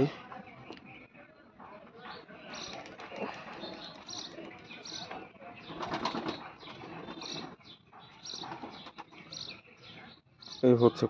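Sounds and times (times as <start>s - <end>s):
pigeon wings flapping: 2.6s - 4.0s, 5.7s - 7.4s.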